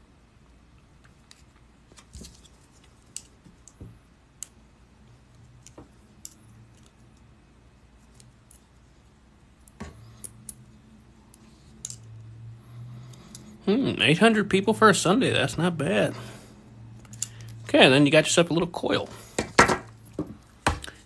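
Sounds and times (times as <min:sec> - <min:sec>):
metallic clicks and wire scrapes: 0:01.0 - 0:03.8, 0:05.2 - 0:07.3, 0:08.0 - 0:12.2, 0:17.0 - 0:17.7.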